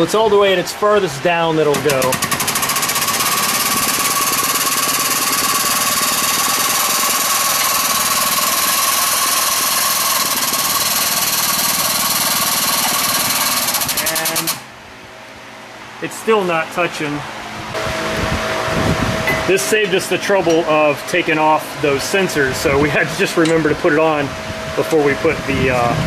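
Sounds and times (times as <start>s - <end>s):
machine rattling loudly: 1.7s - 14.6s
high whine: 2.9s - 26.0s.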